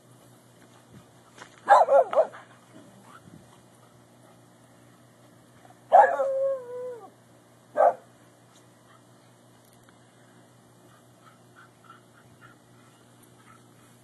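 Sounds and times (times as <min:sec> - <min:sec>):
dog bark-whine: 0:01.7 - 0:02.4, 0:05.9 - 0:06.6, 0:07.8 - 0:08.0.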